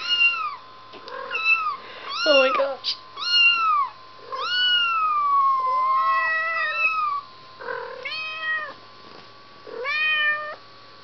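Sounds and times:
kitten meowing: 0.0 - 0.6, 1.2 - 2.5, 3.2 - 8.8.

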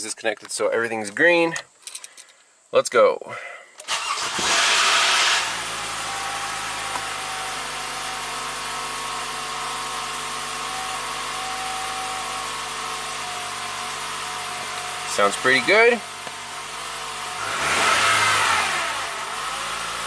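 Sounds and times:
car engine idling: 3.9 - 20.0.

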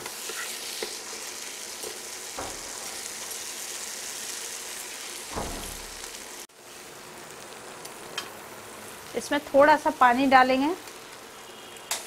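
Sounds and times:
masala sizzling in oil: 0.0 - 12.0.

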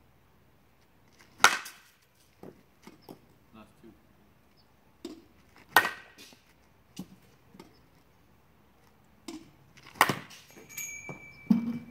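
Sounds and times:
bat cracking softball: 1.2 - 3.3, 5.0 - 7.7, 9.2 - 11.9.

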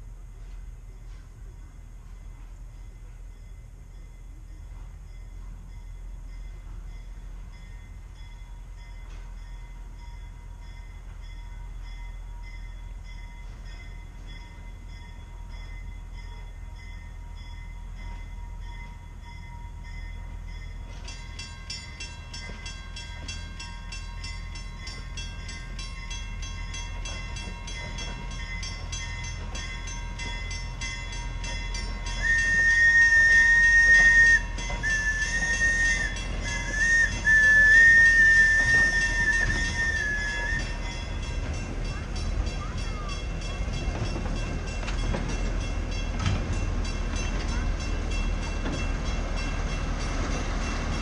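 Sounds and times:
passenger train rumbling: 0.0 - 51.0
train whistle blowing: 32.2 - 40.8.

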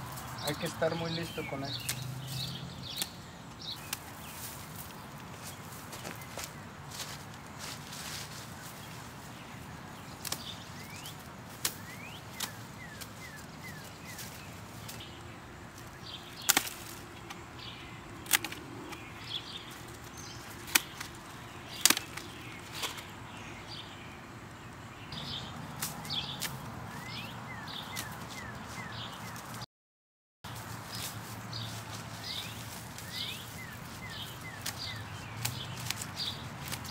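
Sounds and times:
dry stalks rustling: 0.0 - 29.6, 30.5 - 36.9
stalks snapping: 0.4 - 5.6, 10.1 - 15.1, 15.7 - 17.4, 18.1 - 23.1, 25.7 - 26.7, 27.8 - 28.5, 32.3 - 36.9.

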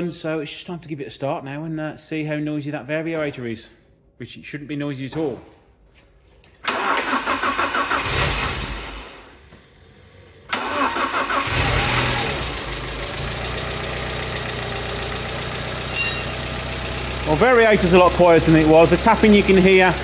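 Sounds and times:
car engine cranking: 6.7 - 8.6, 10.5 - 12.6
car engine revving and idling: 11.3 - 20.0.

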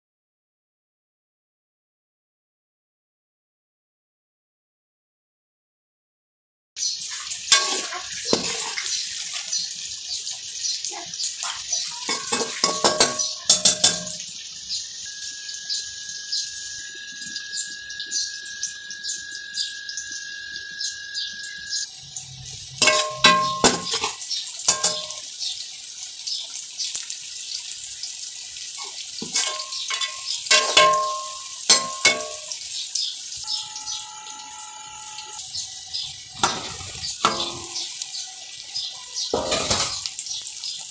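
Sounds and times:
onions sizzling in oil: 6.8 - 40.9
metal spoon scraping pot: 12.1 - 14.2, 22.8 - 25.2, 28.8 - 32.5, 36.4 - 37.9, 39.4 - 40.0
steady high tone: 15.0 - 21.9, 33.4 - 35.4.

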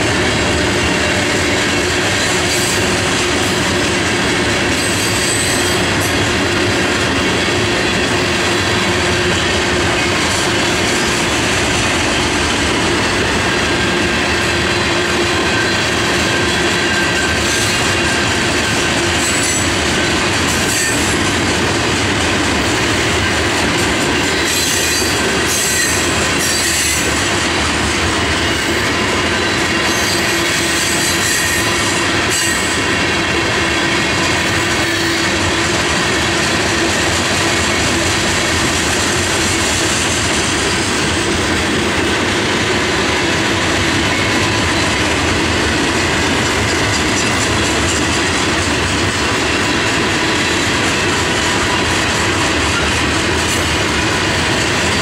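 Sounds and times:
steel wheels rolling on rail: 0.0 - 55.0
high-pitched wheel squeal: 24.4 - 27.1.

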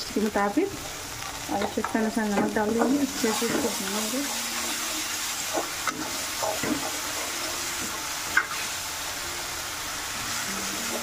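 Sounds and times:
spice paste sizzling in oil: 0.0 - 11.0.

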